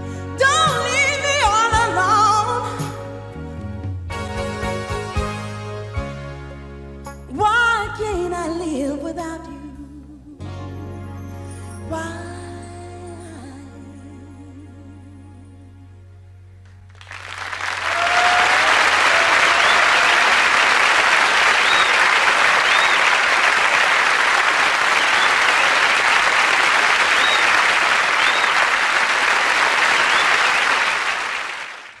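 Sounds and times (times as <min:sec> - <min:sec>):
audience applauding: 0:16.9 - 0:32.0
short whistles: 0:21.5 - 0:23.3, 0:24.9 - 0:26.3, 0:27.1 - 0:28.7, 0:29.9 - 0:30.9.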